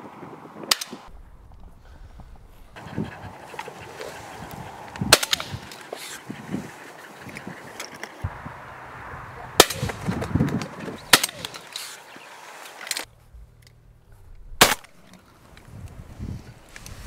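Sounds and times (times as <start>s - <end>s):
shotgun shots: 9.6s - 10.1s, 11.0s - 11.6s, 14.6s - 15.0s.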